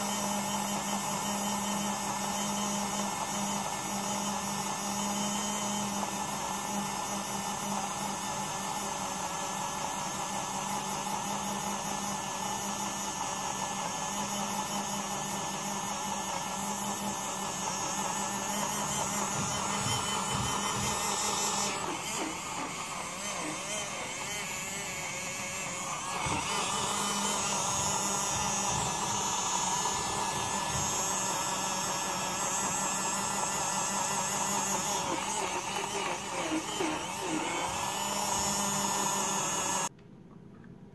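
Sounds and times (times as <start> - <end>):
blender motor whirring: 0.0 - 39.9.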